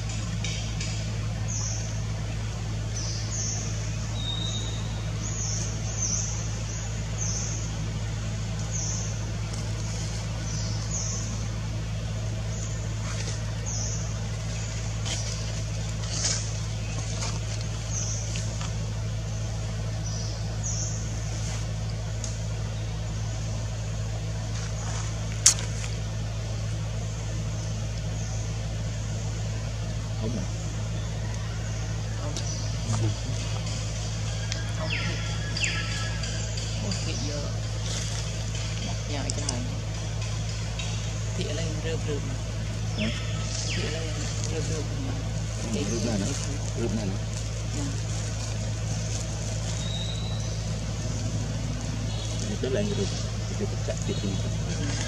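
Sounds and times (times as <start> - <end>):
low engine-like hum: 0.0 - 55.0
bird chirping: 2.8 - 7.9, 8.5 - 11.5, 12.4 - 18.6, 30.2 - 39.7, 40.3 - 48.0, 48.6 - 55.0.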